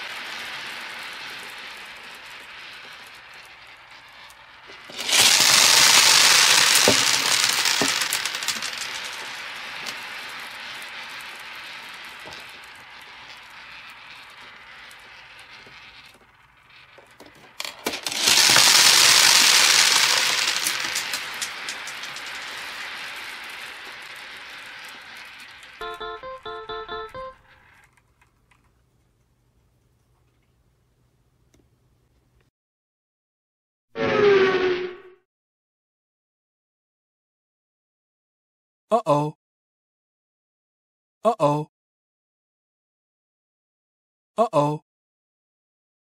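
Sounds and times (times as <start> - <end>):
plastic balls spilling and rattling: 0.0 - 27.9.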